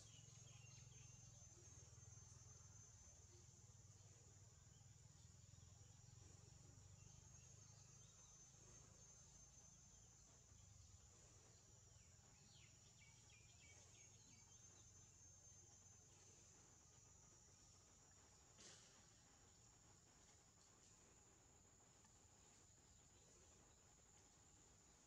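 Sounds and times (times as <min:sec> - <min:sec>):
high insect drone: 0:00.0 - 0:25.0.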